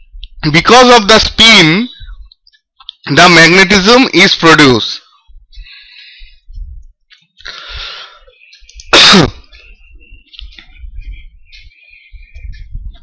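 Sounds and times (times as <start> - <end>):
person sneezing: 8.9 - 9.5.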